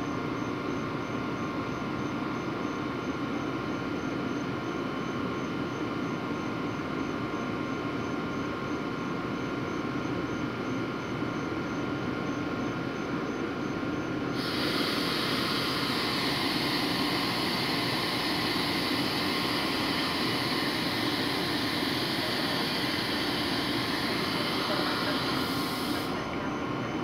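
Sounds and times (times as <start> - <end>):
locomotive hum and whine: 0.0 - 27.0
hissing rush: 14.4 - 26.4.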